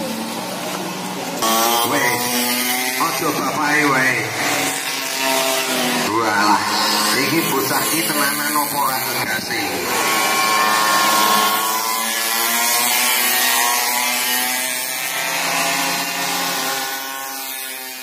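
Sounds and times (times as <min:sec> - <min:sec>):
pocket bike engines buzzing: 0:00.0 - 0:18.0.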